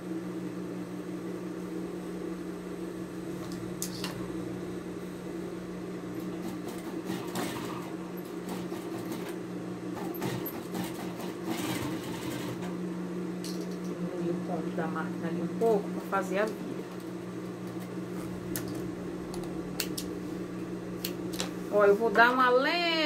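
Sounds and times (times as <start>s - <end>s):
sewing machine humming: 6.1s - 12.8s, 17.8s - 21.9s.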